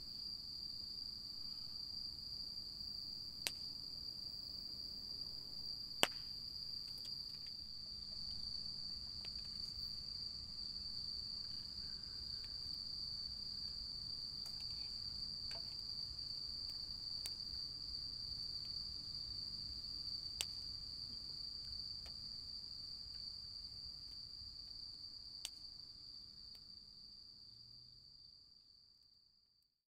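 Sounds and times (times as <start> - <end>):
crickets trilling: 0.0 - 28.8
campfire wood popping: 6.0 - 7.6.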